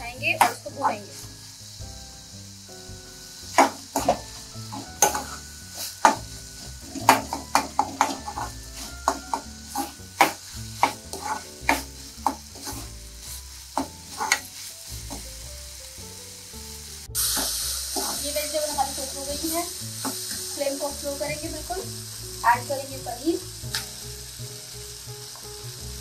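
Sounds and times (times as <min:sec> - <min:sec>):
vegetables sizzling: 0:00.0 - 0:26.0
metal spatula scraping a pan: 0:03.5 - 0:15.2, 0:17.2 - 0:20.4.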